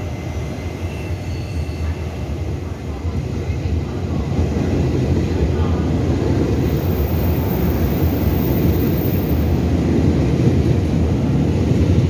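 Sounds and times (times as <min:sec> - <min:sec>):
electric train rumbling: 0:00.0 - 0:12.0.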